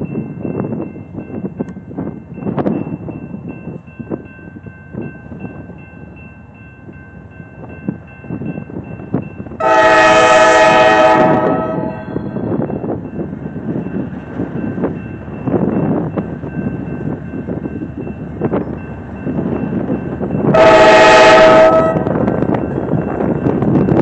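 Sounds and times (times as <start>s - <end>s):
crossing bell dinging: 0.0s - 24.0s
train rumble: 0.0s - 24.0s
locomotive horn blast: 9.6s - 12.2s, 20.5s - 22.2s.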